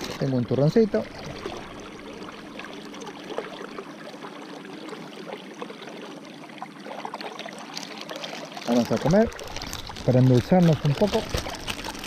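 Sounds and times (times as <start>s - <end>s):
faint crackles: 6.8s - 12.0s.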